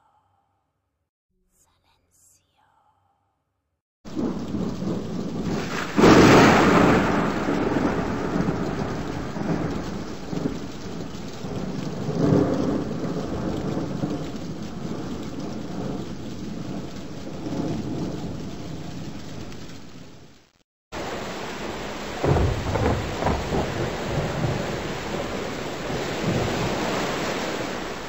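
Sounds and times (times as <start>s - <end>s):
thunder rolling: 4.1s - 20.4s, 21.0s - 28.0s
heavy rain: 4.1s - 28.0s.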